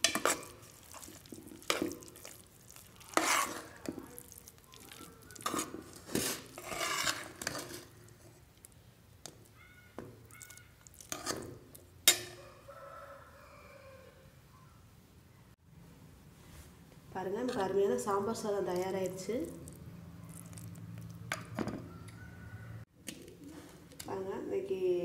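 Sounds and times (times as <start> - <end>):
metal spoon scraping pot: 0.0 - 8.4, 10.4 - 12.4.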